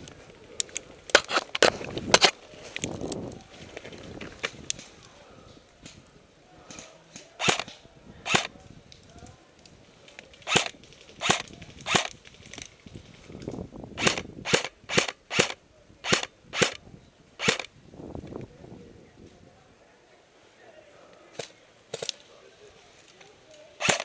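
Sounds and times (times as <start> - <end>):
airsoft rifle shots: 7.4 - 7.7, 8.3 - 8.5, 10.5 - 12.1, 14.0 - 16.8, 17.4 - 17.7, 23.8 - 24.0.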